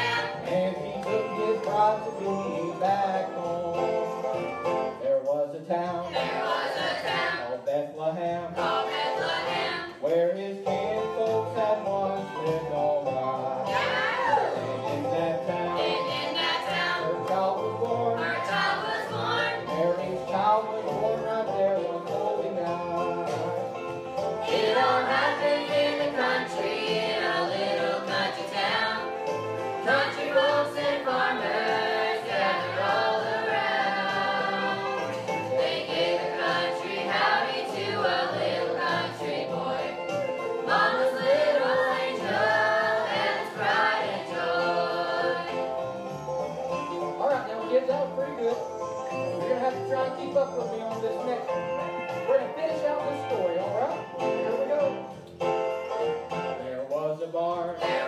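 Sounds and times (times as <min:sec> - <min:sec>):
children singing together: 0:00.0 - 0:00.5, 0:06.1 - 0:07.4, 0:08.6 - 0:09.9, 0:15.8 - 0:17.1, 0:18.2 - 0:19.6, 0:24.4 - 0:29.2, 0:29.8 - 0:45.7
instrumental accompaniment: 0:00.0 - 0:58.0.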